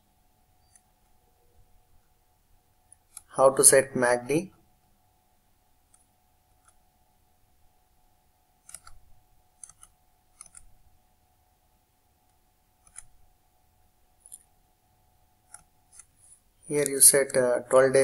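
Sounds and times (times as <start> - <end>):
faint steady hum: 0.0 - 18.0
computer mouse clicking: 0.6 - 1.2, 2.9 - 3.3, 5.9 - 6.8, 8.6 - 9.0, 9.6 - 10.8, 12.3 - 13.2, 15.5 - 16.2.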